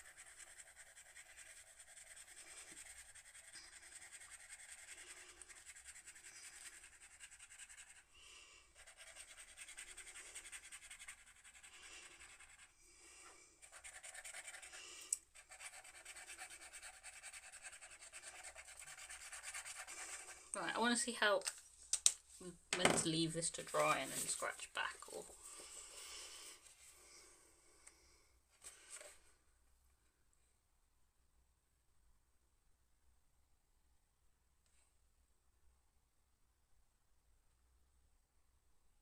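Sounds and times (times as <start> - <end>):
marker scratching on paper: 0.0 - 8.1, 8.7 - 12.8, 13.6 - 20.9.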